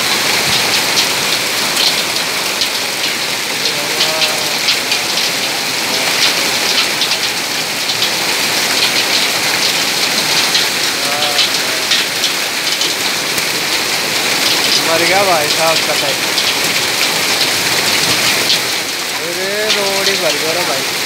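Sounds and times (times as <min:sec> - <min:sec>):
hailstones ticking on car and road: 0:00.0 - 0:21.0
heavy rain hissing: 0:00.0 - 0:21.0.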